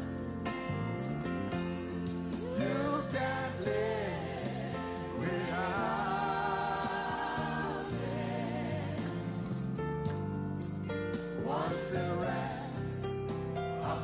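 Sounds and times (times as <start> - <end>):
instrumental accompaniment with beat: 0.0 - 14.0
women singing gospel song: 2.3 - 9.6, 11.4 - 13.0, 13.8 - 14.0.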